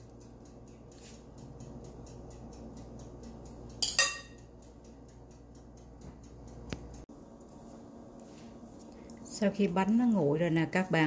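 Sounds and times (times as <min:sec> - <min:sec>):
faint low background hum: 0:00.0 - 0:11.0
metal spatula clinking: 0:03.8 - 0:04.4.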